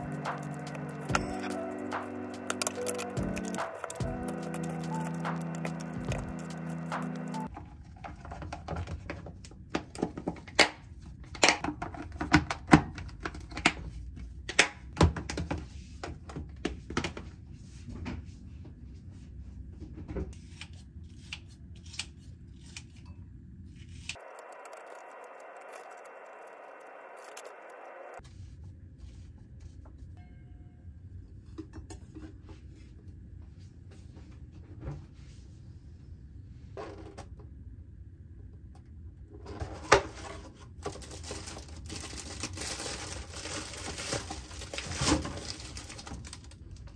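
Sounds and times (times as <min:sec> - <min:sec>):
tongs and plastic containers clicking: 0:02.4 - 0:07.5.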